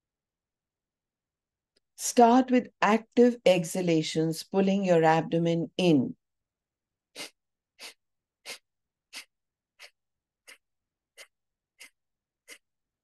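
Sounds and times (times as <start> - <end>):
sharp nasal exhalations: 7.1 - 12.7.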